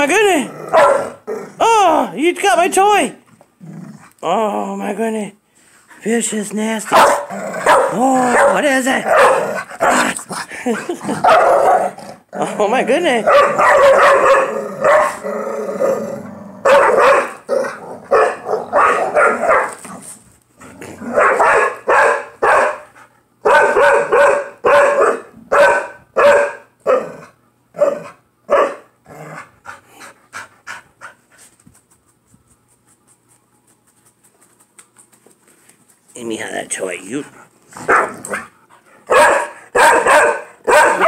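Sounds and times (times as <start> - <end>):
dogs growling: 0.4 - 1.6, 3.3 - 4.2, 7.0 - 12.6, 13.2 - 21.4, 29.0 - 30.4, 37.4 - 38.9
dogs barking: 0.7 - 1.3, 6.9 - 10.1, 11.1 - 12.0, 13.2 - 15.2, 16.6 - 19.8, 21.1 - 28.9, 37.8 - 38.5, 39.1 - 41.0.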